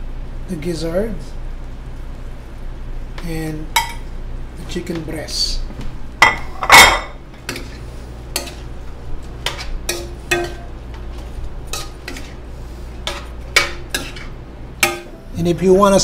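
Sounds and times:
spatula scraping metal pan: 13.0 - 14.3.

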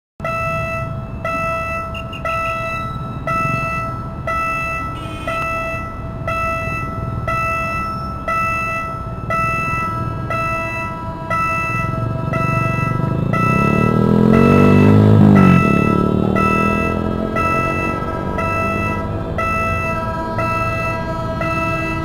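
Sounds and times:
approaching train: 0.2 - 22.0
level-crossing warning bell: 0.2 - 22.0
traffic rumble: 0.2 - 22.0.

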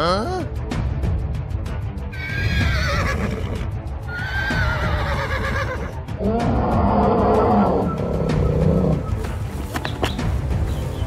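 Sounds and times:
horse whinnying: 2.1 - 6.0
background music with low beat: 4.8 - 11.0.

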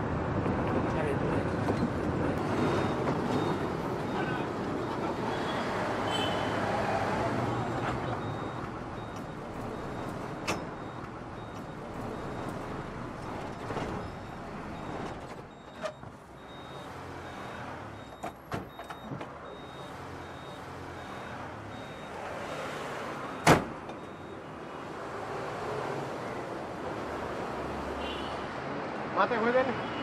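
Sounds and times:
bus engine and road noise: 0.0 - 30.0.

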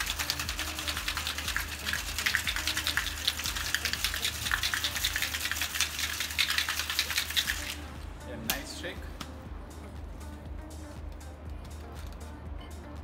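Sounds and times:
ice rattling in cocktail shaker: 0.0 - 7.8.

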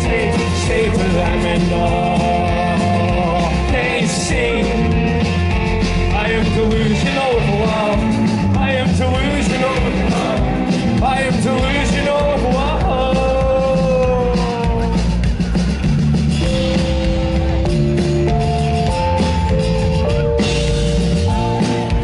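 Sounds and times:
person singing: 0.0 - 5.2, 5.9 - 15.2
rock band playing: 0.0 - 22.0.

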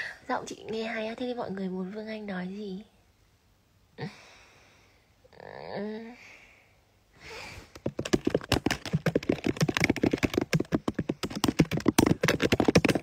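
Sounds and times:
sharp taps and clicks: 7.7 - 13.0.

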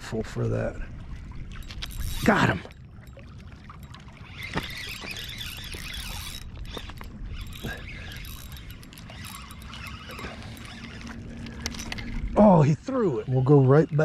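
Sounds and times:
fishing reel cranking: 1.5 - 3.2, 3.8 - 14.0
sharp reel clicks: 4.3 - 12.1.

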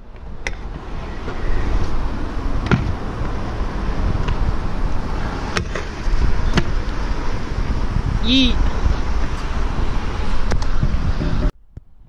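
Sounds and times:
scooter wheels rolling on concrete: 0.0 - 11.5.

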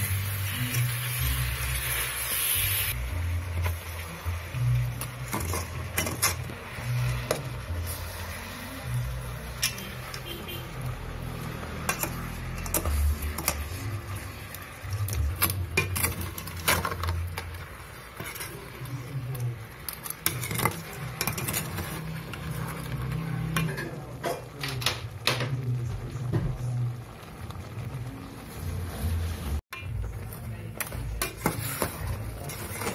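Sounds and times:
metal pot clinking on stove grate: 5.0 - 6.5.

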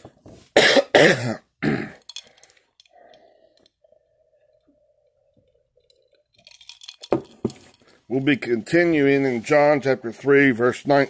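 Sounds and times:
man coughing hard: 0.6 - 2.1.

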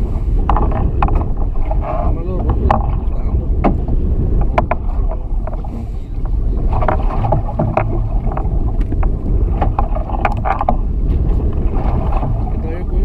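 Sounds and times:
water lapping against boat hull: 0.0 - 13.0
wind on microphone: 0.0 - 13.0
light clicks and knocks: 6.8 - 10.8.

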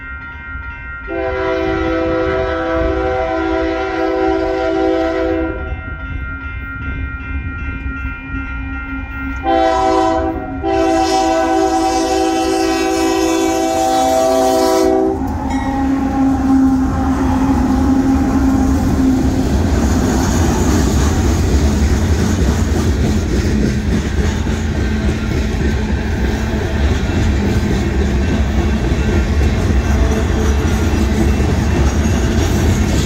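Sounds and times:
crossing signal bell ringing: 0.0 - 3.4, 4.0 - 19.8, 27.3 - 33.0
locomotive air horn blasts: 1.1 - 5.7, 9.4 - 18.2.

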